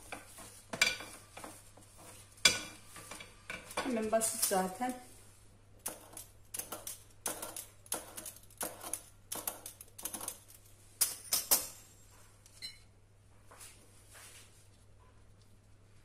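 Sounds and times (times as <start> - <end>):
pastry wheel rolling across dough: 0.0 - 5.0.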